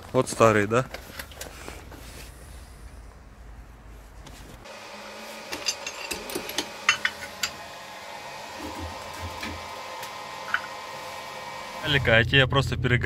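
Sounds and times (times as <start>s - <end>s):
wrench clinking on metal: 5.6s - 7.5s.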